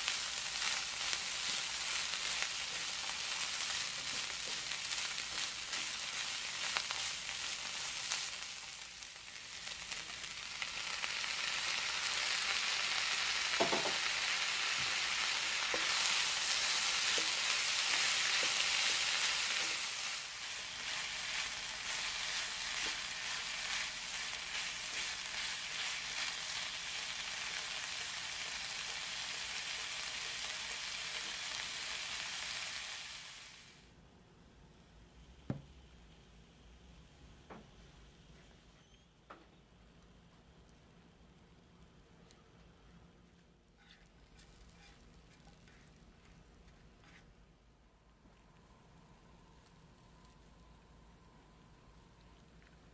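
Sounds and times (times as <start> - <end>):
food sizzling in a frying pan: 0.0 - 33.9
sharp tap on pan: 13.6 - 14.0
spatula scraping pan: 43.8 - 46.0.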